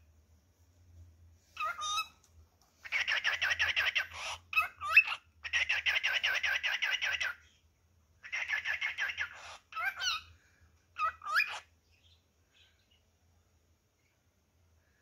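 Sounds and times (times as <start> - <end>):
cockatiel chirping: 1.6 - 2.2, 2.8 - 7.6, 8.2 - 10.3, 11.0 - 12.9.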